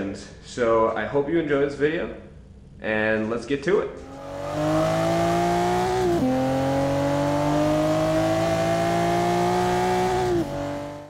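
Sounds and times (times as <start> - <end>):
car engine accelerating hard: 4.0 - 11.0.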